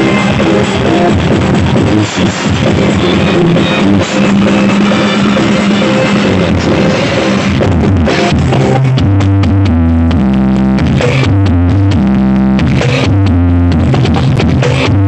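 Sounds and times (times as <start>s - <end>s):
deep bass notes: 0.0s - 15.0s
loud music from sound system: 0.0s - 15.0s.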